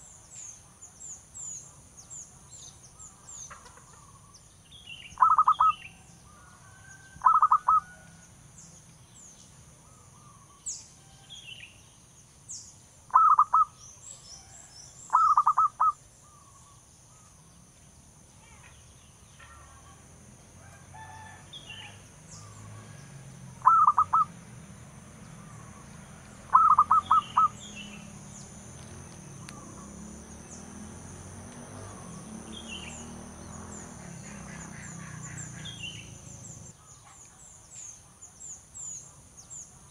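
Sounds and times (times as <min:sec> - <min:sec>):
dove cooing: 0:05.2 - 0:05.7, 0:07.2 - 0:08.0, 0:13.1 - 0:13.7, 0:15.1 - 0:16.0, 0:23.6 - 0:24.3, 0:26.5 - 0:27.6.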